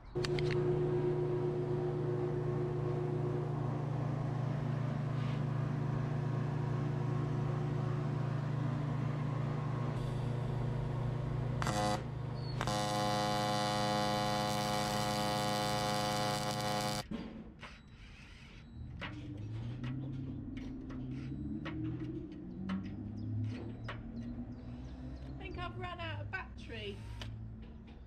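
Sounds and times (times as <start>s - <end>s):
welding arc buzzing: 0.0s - 17.0s.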